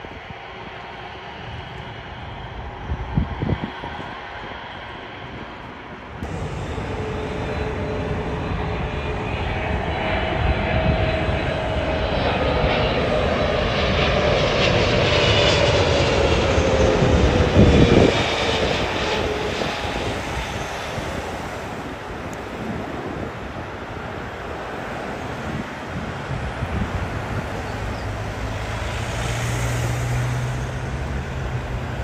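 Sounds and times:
jet plane passing low: 0:00.0 - 0:32.0.

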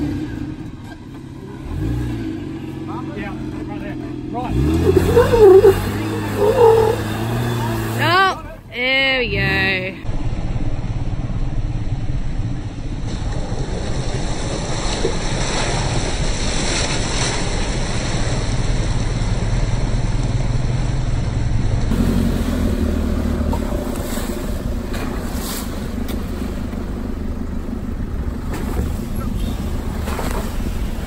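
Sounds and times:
tyres splashing through puddles: 0:00.0 - 0:08.4, 0:13.0 - 0:21.2, 0:21.8 - 0:31.0
vehicle engine humming: 0:00.0 - 0:31.0
tyres rolling on dirt: 0:04.5 - 0:08.5, 0:13.1 - 0:31.0.

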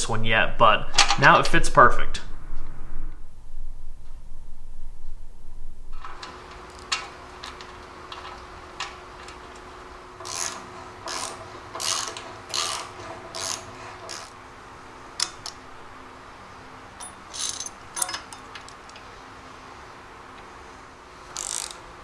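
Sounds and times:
steady low hum: 0:00.0 - 0:22.0
ratchet wrench clicking: 0:10.2 - 0:14.4, 0:17.0 - 0:18.4, 0:21.3 - 0:21.8.

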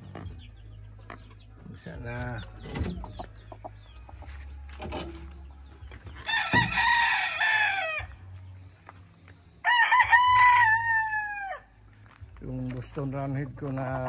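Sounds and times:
rooster crowing: 0:06.3 - 0:08.1, 0:09.6 - 0:11.7.

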